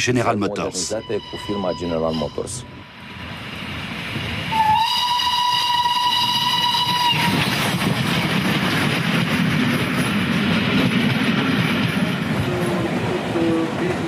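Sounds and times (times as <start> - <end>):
train passing with wheel clatter: 0.0 - 14.0
steam locomotive whistle: 0.8 - 2.9, 4.5 - 7.7.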